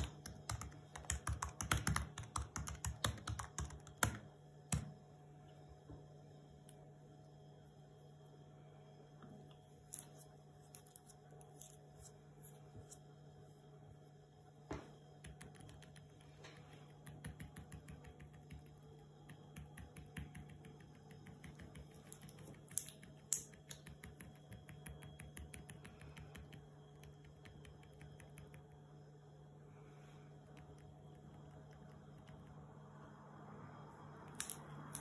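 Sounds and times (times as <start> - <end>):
laptop keyboard typing: 0.0 - 5.0, 15.2 - 28.8, 30.5 - 32.6.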